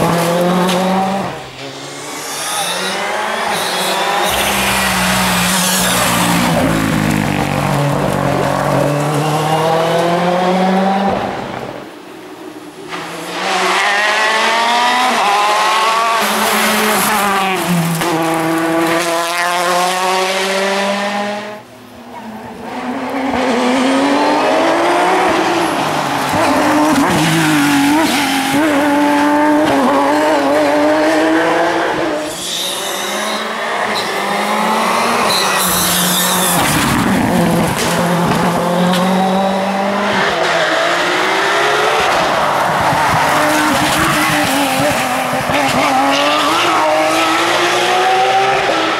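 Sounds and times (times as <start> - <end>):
rally car engines passing: 0.0 - 11.8, 12.8 - 48.9.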